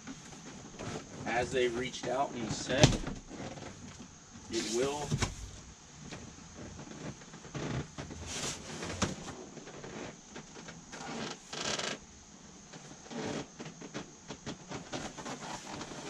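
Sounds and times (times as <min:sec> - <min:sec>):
cardboard box rustling and scraping: 0:04.5 - 0:05.5, 0:08.1 - 0:09.4.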